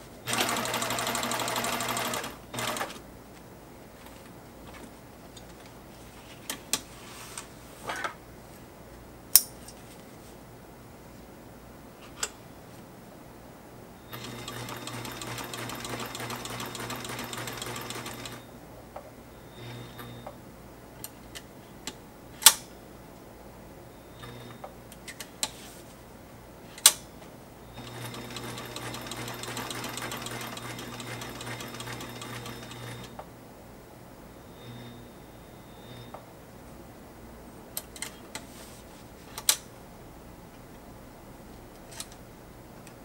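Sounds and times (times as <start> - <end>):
sewing machine stitching: 0.3 - 3.0, 14.1 - 18.4, 27.8 - 33.1.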